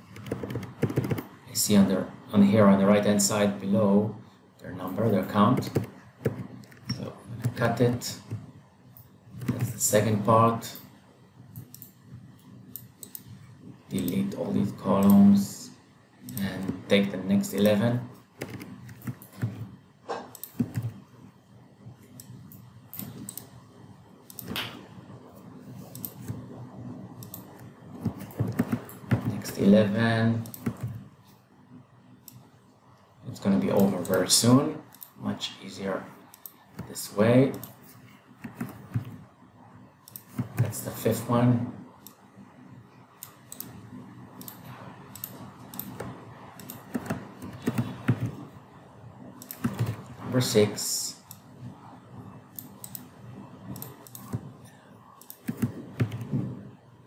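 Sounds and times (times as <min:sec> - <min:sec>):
mouse and keyboard clicks: 0:00.0 - 0:01.3, 0:24.3 - 0:24.8, 0:27.2 - 0:29.7, 0:30.4 - 0:31.0, 0:53.7 - 0:54.5, 0:55.2 - 0:56.4
computer mouse clicks: 0:00.0 - 0:01.4, 0:05.6 - 0:09.8, 0:11.5 - 0:14.2, 0:15.0 - 0:15.2, 0:16.2 - 0:16.9, 0:18.4 - 0:21.1, 0:22.0 - 0:23.6, 0:24.2 - 0:24.9, 0:25.7 - 0:29.7, 0:30.4 - 0:31.1, 0:33.7 - 0:34.3, 0:34.9 - 0:35.2, 0:36.3 - 0:39.3, 0:40.0 - 0:41.0, 0:43.1 - 0:48.5, 0:49.4 - 0:50.2, 0:52.5 - 0:56.6
keyboard clicks: 0:00.0 - 0:01.4, 0:05.5 - 0:08.5, 0:09.4 - 0:09.8, 0:18.4 - 0:21.0, 0:24.3 - 0:24.8, 0:25.8 - 0:26.6, 0:27.2 - 0:29.7, 0:30.4 - 0:31.0, 0:38.4 - 0:39.2, 0:40.0 - 0:41.0, 0:44.4 - 0:48.5, 0:49.4 - 0:50.1, 0:53.7 - 0:54.6, 0:55.2 - 0:56.6.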